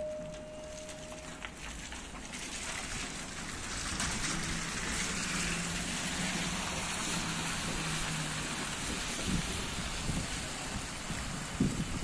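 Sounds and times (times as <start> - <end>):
low steady hum: 0.0 - 1.8
tyres hissing on wet road: 1.4 - 12.0.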